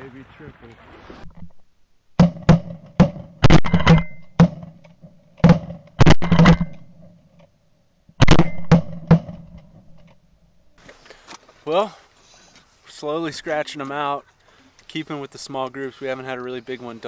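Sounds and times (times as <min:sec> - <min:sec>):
shotgun blasts: 0:02.2 - 0:04.7, 0:05.4 - 0:06.9, 0:08.2 - 0:09.5.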